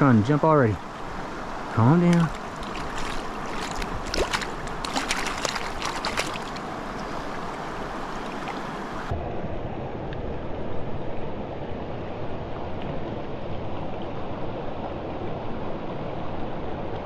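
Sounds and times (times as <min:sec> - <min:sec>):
stream water rushing: 0:00.0 - 0:09.2.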